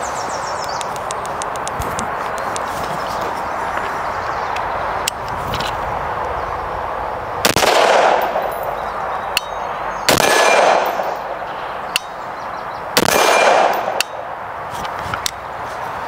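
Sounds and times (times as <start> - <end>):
rifle shots echoing: 7.4 - 12.2, 13.0 - 14.3
sharp metallic pings: 8.1 - 12.3, 13.0 - 14.3.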